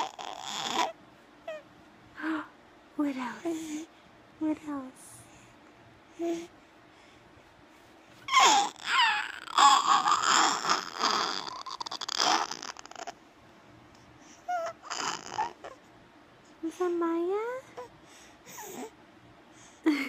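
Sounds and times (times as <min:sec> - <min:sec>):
baby squealing and babbling: 0:00.0 - 0:01.6, 0:08.3 - 0:13.1, 0:14.5 - 0:15.8.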